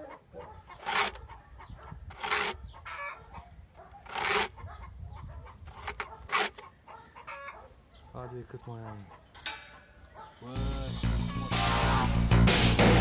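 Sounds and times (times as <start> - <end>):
chickens clucking faintly: 0.0 - 10.6
file rasping on chainsaw chain: 0.8 - 1.2, 2.1 - 2.6, 4.0 - 4.6, 5.7 - 6.6.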